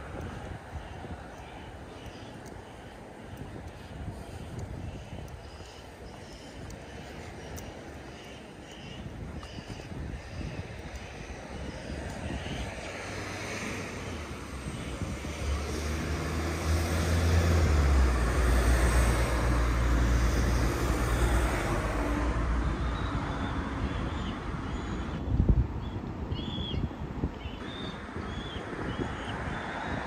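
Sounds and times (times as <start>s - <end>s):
city traffic noise: 0.0s - 30.0s
large engine droning past: 11.1s - 25.2s.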